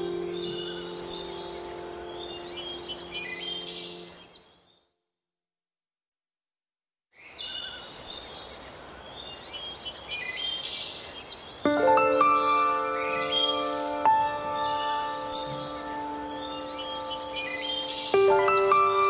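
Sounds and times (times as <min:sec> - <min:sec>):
low music chord: 0:00.0 - 0:04.2, 0:11.7 - 0:19.0
birds chirping: 0:00.0 - 0:04.9, 0:07.2 - 0:19.0
steady hiss: 0:07.9 - 0:19.0.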